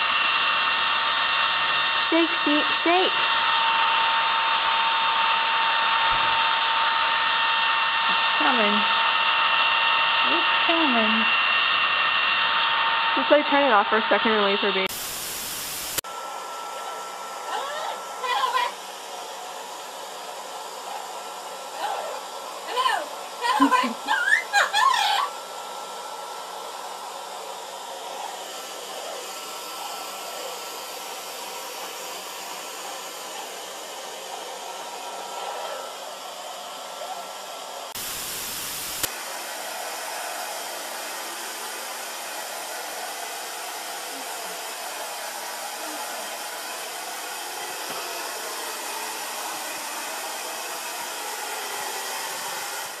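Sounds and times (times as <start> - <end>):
hair dryer blowing: 0.0 - 53.0
static hiss: 14.7 - 16.0, 37.8 - 41.2.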